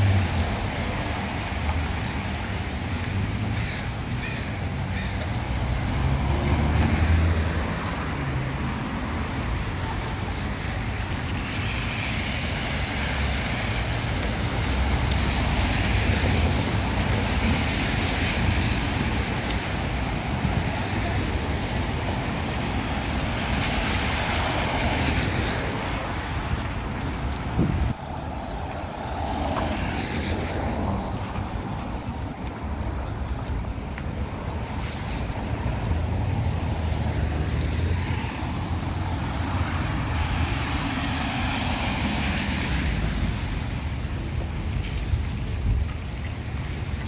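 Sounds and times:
tyres hissing on wet road: 0:00.0 - 0:47.0.

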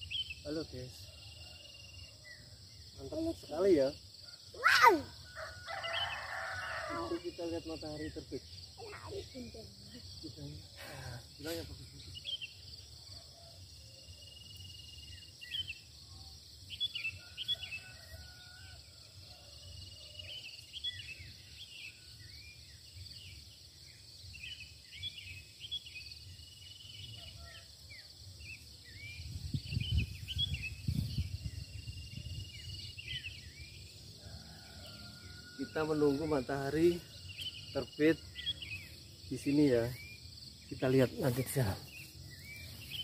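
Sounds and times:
small birds chirping: 0:00.0 - 0:16.0, 0:35.4 - 0:43.0
high drone of insects: 0:00.0 - 0:43.0.

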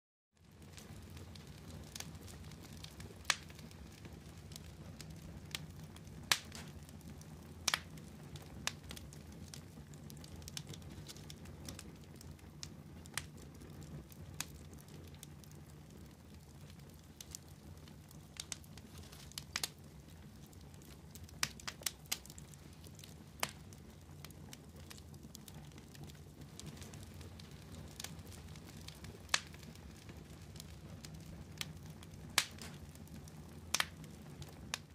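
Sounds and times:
embers crackling and popping: 0:00.4 - 0:34.9.

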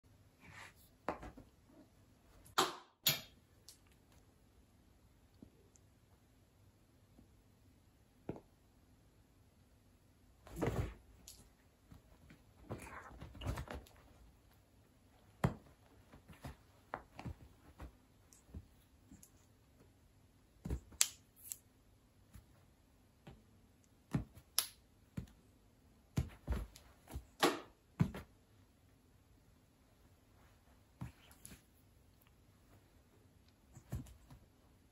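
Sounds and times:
rustling of bed covers: 0:10.4 - 0:19.1
sharp taps and soft thumps: 0:15.2 - 0:19.4, 0:26.1 - 0:28.4, 0:33.6 - 0:34.6.

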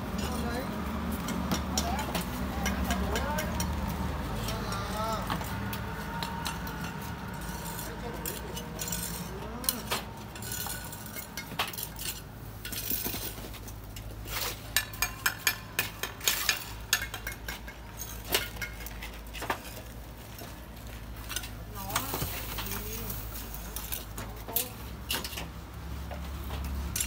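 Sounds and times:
trowels scraping and clinking: 0:04.4 - 0:20.5.

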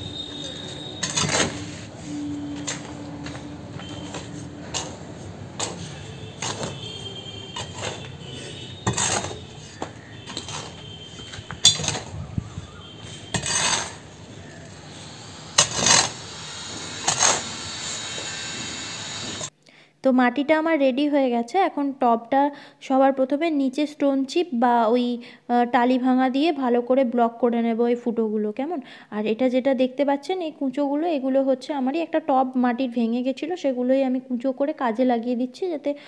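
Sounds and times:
metal hoe scraping soil: 0:00.0 - 0:18.3
hoe blade clinking on concrete: 0:07.6 - 0:12.2, 0:13.0 - 0:14.8.

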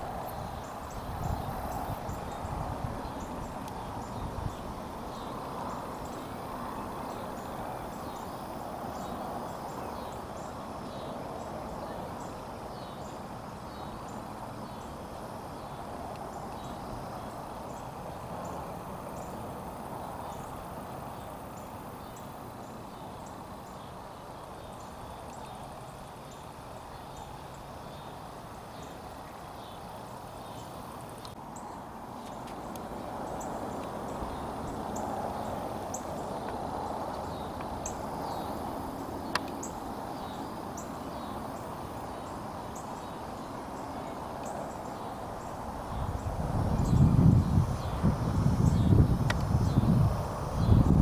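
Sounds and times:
faint high-pitched ticks: 0:39.2 - 0:39.8.

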